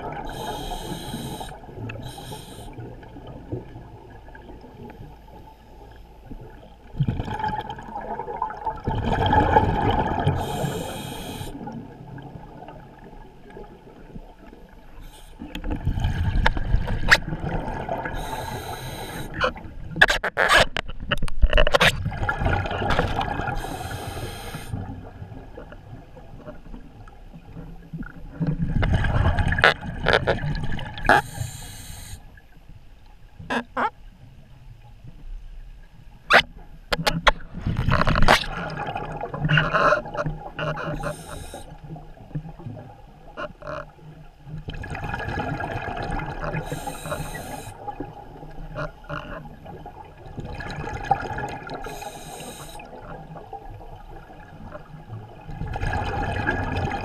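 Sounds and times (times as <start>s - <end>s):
exhaled bubbles gurgling: 0.0s - 20.0s, 21.9s - 32.2s, 37.5s - 57.0s
regulator hissing inhalations: 0.3s - 2.8s, 10.4s - 11.6s, 15.0s - 15.4s, 18.2s - 19.4s, 23.6s - 24.8s, 31.1s - 32.2s, 41.0s - 41.7s, 46.6s - 47.8s, 51.8s - 52.9s.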